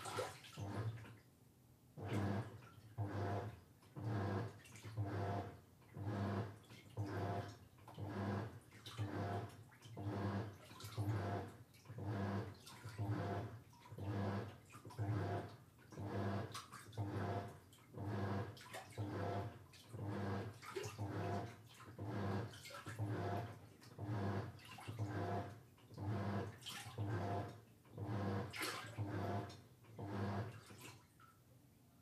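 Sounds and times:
washing machine motor hum: 0.0 - 1.2, 1.9 - 31.1
water sloshing: 0.0 - 1.3, 6.5 - 15.0, 15.6 - 25.1, 25.7 - 27.8, 28.5 - 29.6, 30.5 - 31.4.

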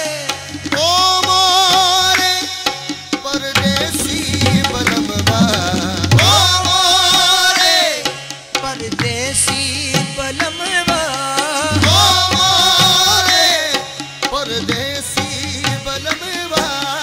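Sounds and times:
tabla drumming: 0.0 - 17.0
vocal melody: 3.3 - 8.1, 10.2 - 17.0.

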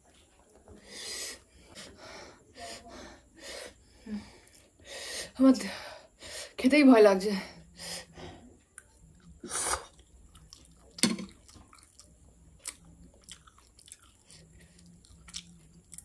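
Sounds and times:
person chewing noodles: 8.6 - 16.0.

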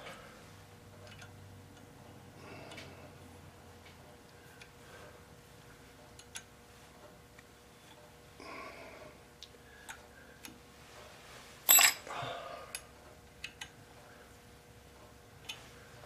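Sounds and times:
metallic clink with ring: 11.7 - 12.1.

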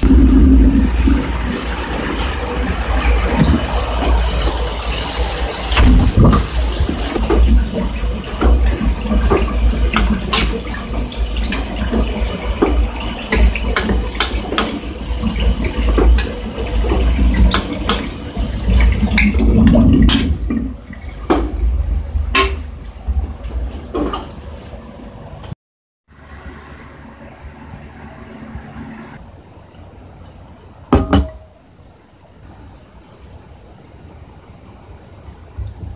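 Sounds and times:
hot pan hissing on gas burner: 0.0 - 19.2
spatula scraping and knocking a pan: 5.8 - 18.2.

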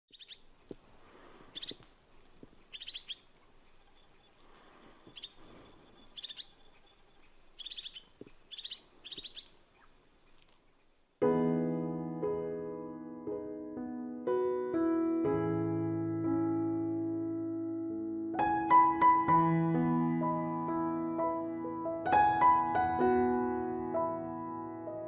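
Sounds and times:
birds chirping: 0.1 - 11.2
piano music: 11.2 - 25.0.

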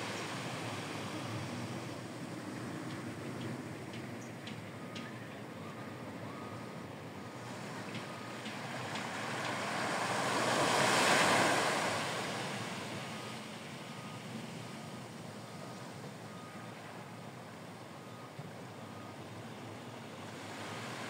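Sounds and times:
wave breaking on sand beach: 8.6 - 13.3.

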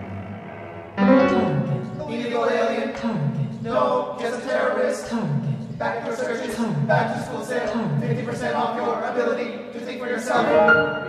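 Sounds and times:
chamber ensemble with electronics: 0.0 - 2.3, 10.4 - 11.0.

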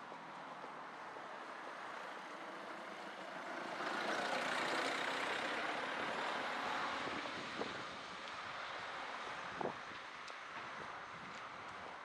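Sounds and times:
vehicle passing by: 2.3 - 7.6.

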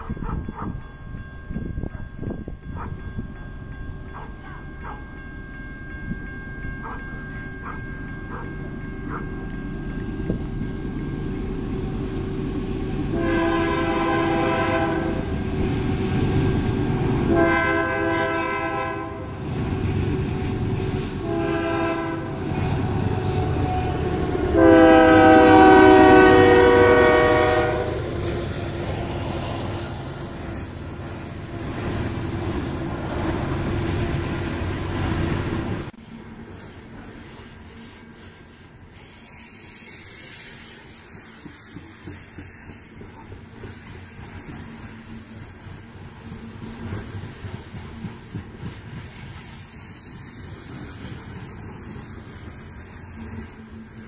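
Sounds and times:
train wagons rolling on rails: 0.0 - 54.0
locomotive air horn: 12.9 - 19.4, 20.2 - 30.1.

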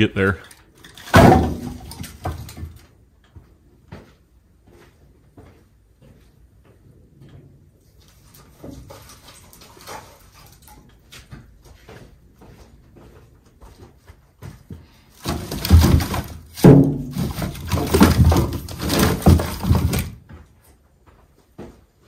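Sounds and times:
firewood thumping into truck bed: 1.0 - 2.8, 15.2 - 20.2.

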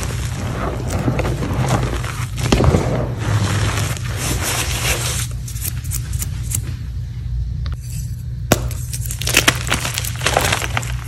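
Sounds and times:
hands crunching through chalk powder: 0.0 - 5.4.

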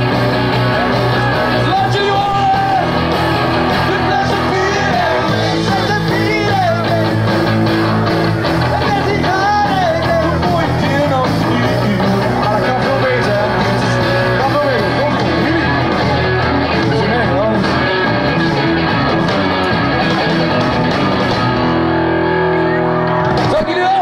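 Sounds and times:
live rock band playing: 0.0 - 24.0
person singing: 0.7 - 3.0, 3.6 - 7.3, 8.6 - 17.9.

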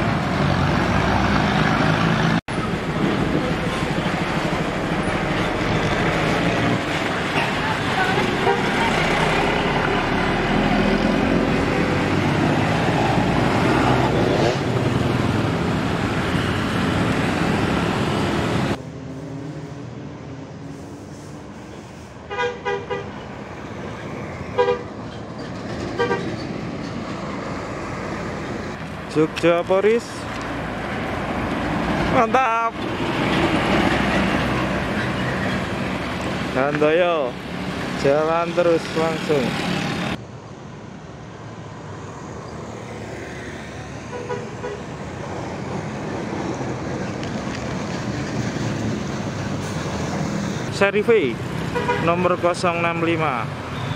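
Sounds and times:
bus engine running: 0.0 - 22.2
bus engine and tyres passing: 0.0 - 53.9
bus horn toot: 7.9 - 9.1, 22.3 - 23.2, 24.6 - 25.0, 26.0 - 26.3, 44.1 - 44.9, 51.7 - 52.1
bus horn two-tone toot: 22.3 - 23.1, 44.1 - 44.8.

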